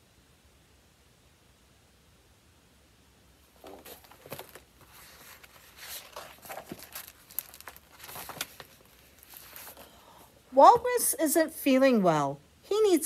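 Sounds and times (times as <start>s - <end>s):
paper rustling and crinkling: 3.5s - 9.9s.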